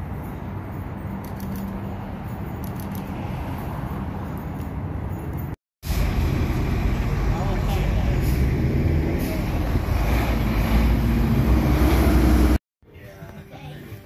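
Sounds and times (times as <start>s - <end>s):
road traffic rumble: 0.0s - 12.6s.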